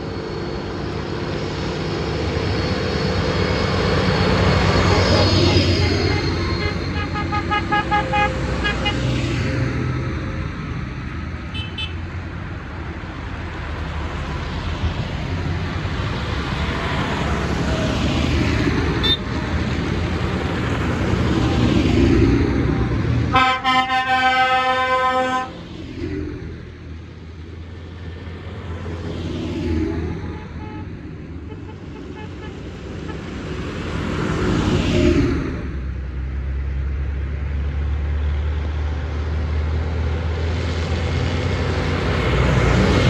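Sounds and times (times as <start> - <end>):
tractor engines running: 0.0 - 23.7, 29.8 - 43.0
loud horn blast: 5.7 - 9.2, 11.5 - 12.0, 19.0 - 19.3, 23.3 - 25.6, 30.3 - 33.3
horn toots: 5.9 - 9.1, 11.5 - 12.0, 23.3 - 25.6, 30.3 - 33.3.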